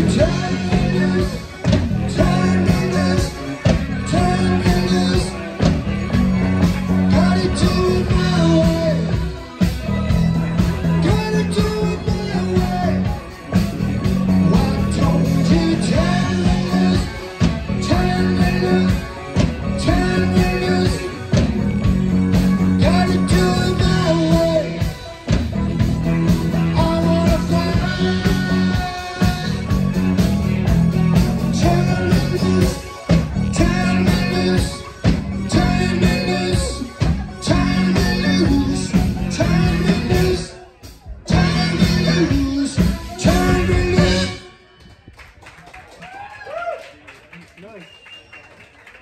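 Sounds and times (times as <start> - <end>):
person singing: 0.0 - 44.6
live rock band playing: 0.0 - 45.4.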